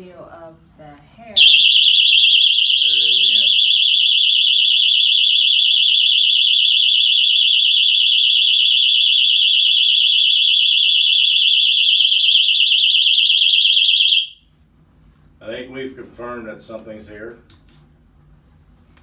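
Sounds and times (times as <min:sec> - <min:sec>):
shrill warbling alarm tone: 0:01.4 - 0:14.4.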